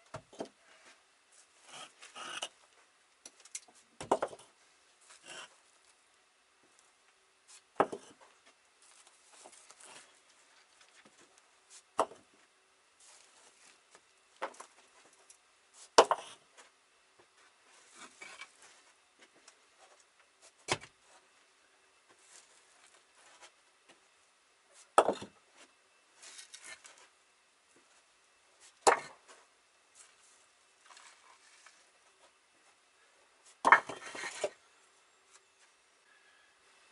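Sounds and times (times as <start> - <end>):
soft scraping and shuffling: 0.6 - 3.0, 3.6 - 24.9, 25.5 - 36.4
brick knocking on brick: 7.8 - 8.1, 25.0 - 25.3, 33.6 - 34.5.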